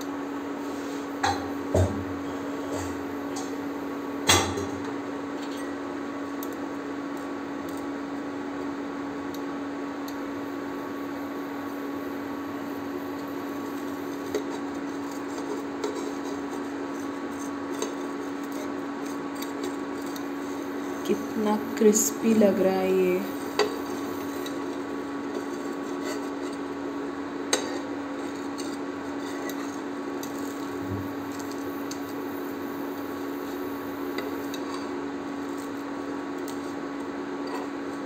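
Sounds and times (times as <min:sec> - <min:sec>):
induction cooktop hum: 0:00.0 - 0:38.0.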